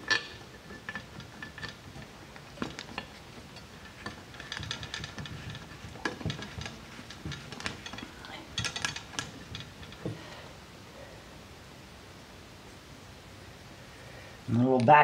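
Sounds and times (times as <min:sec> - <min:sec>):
small metal parts clicking: 0:00.0 - 0:10.1.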